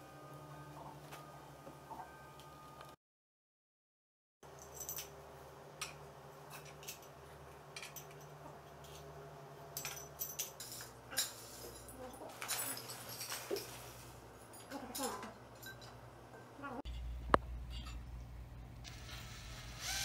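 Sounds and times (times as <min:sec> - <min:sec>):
metal frame pieces clinking: 0:05.8 - 0:09.1, 0:09.7 - 0:16.0, 0:16.9 - 0:18.1
steady low hum: 0:13.6 - 0:20.0.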